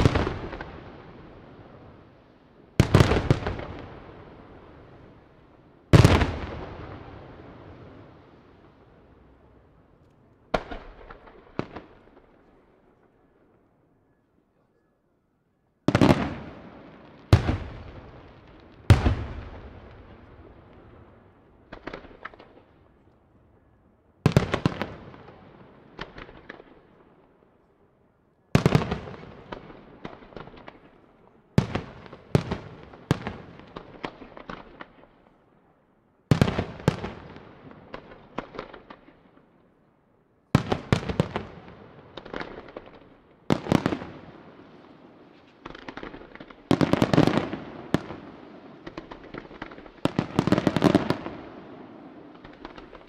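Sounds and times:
firework bangs: 0.0s - 1.4s, 5.9s - 8.1s, 15.9s - 22.7s, 40.6s - 53.0s.

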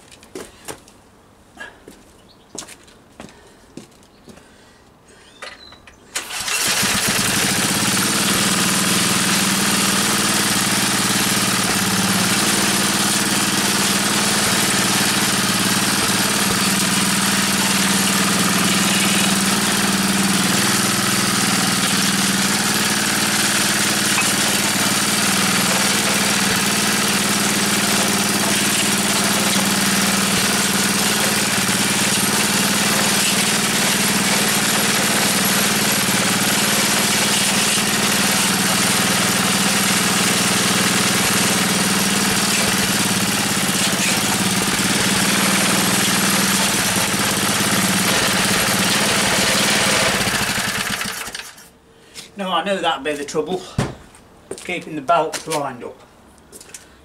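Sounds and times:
small petrol engine running: 6.2s - 51.7s.

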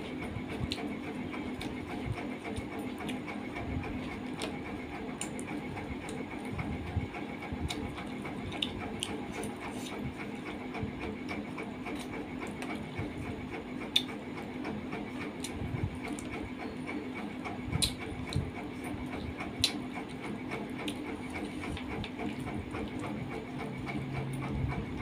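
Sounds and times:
steady background hum: 0.0s - 25.0s
chewing and mouth clicks: 0.1s - 3.3s, 7.6s - 10.4s, 13.8s - 14.2s, 17.7s - 23.2s.

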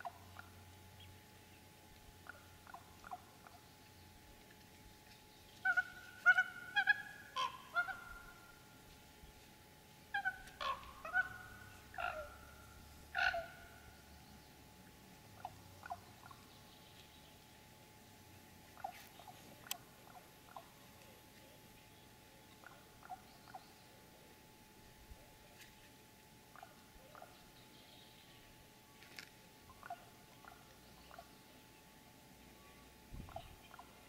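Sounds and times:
raven calling: 5.6s - 8.6s, 10.1s - 14.0s.

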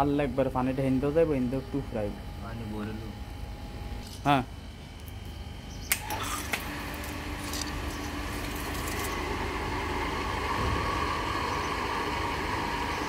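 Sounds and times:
water pump motor hum: 4.7s - 13.0s
pump switch click: 5.9s - 6.7s.

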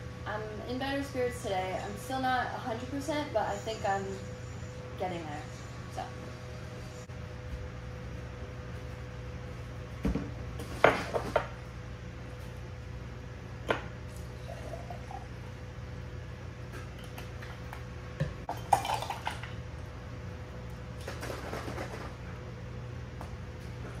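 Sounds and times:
low hum: 0.0s - 10.8s
liquid pouring into glass: 18.5s - 19.6s.

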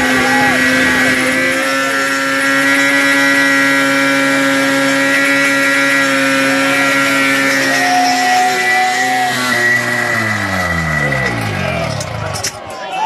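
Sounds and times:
car engine at high revs: 0.0s - 12.6s.

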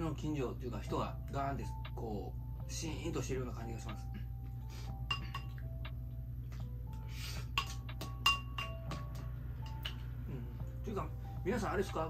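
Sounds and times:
spoon clinking ceramic bowl: 5.1s - 5.6s, 7.6s - 9.0s.

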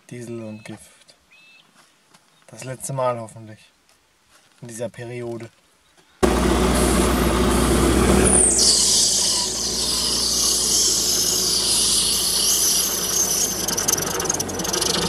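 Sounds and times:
rushing air: 6.2s - 14.9s
gyrocopter engine whine: 6.2s - 15.0s.

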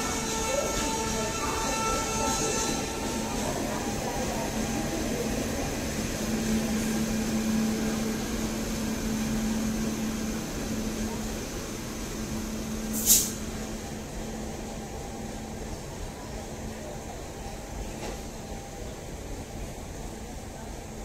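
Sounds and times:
electric train running past: 0.0s - 21.0s
short sharp hiss: 12.9s - 13.4s.

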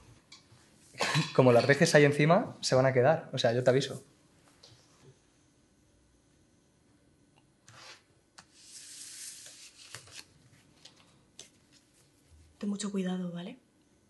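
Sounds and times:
paper rustling: 7.7s - 12.2s.

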